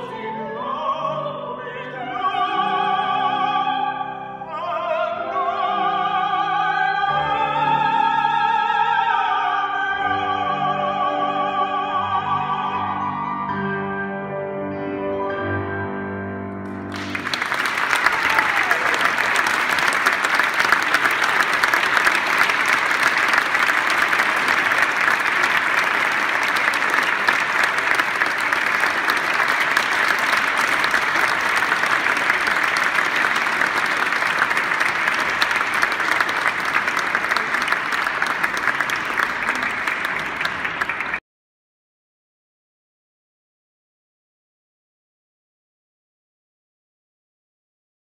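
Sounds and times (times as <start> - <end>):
audience applauding: 16.8 - 41.2.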